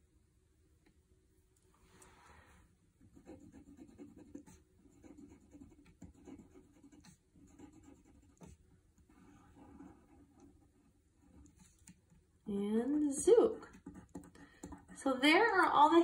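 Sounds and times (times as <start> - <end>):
crayon scratching on paper: 3.1 - 12.2, 12.9 - 15.1.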